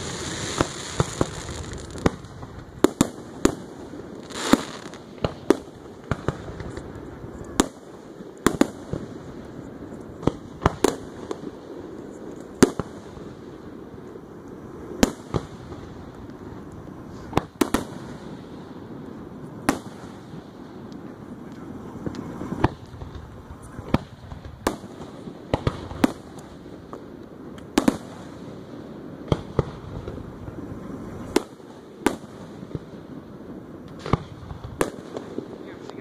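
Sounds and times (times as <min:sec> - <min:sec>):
firework shells bursting: 0:00.0 - 0:07.0
background murmur: 0:00.0 - 0:36.0.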